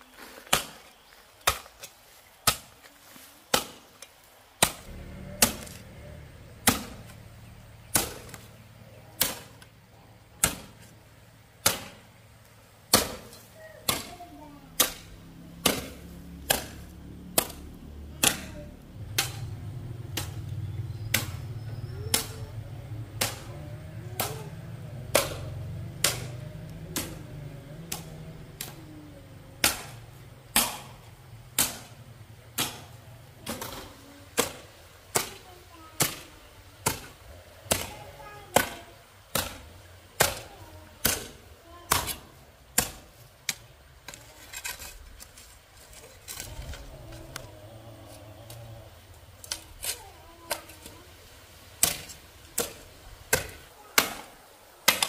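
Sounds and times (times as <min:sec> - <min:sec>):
low rumble: 0:04.8 - 0:09.1.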